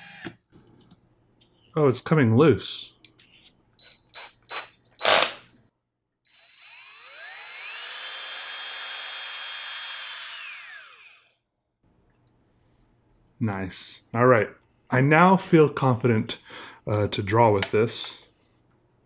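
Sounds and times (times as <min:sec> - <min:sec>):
drill whine: 0:03.8 - 0:05.4, 0:06.3 - 0:11.4.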